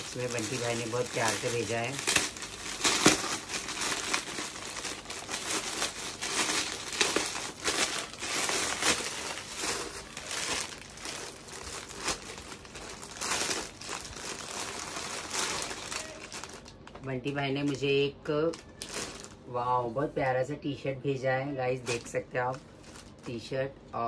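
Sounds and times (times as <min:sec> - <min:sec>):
foil wrapping crinkling: 0:00.0 - 0:17.0, 0:18.5 - 0:19.4.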